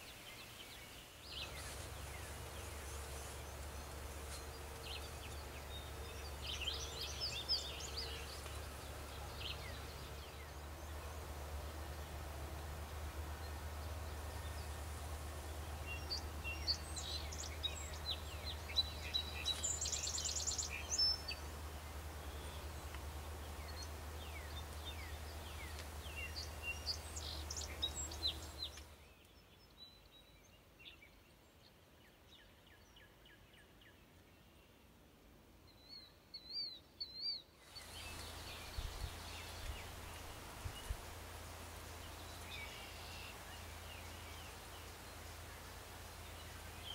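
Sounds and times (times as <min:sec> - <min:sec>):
songbirds chirping and singing: 0:00.0 - 0:31.3, 0:35.7 - 0:46.9
steady low hum: 0:01.3 - 0:28.9.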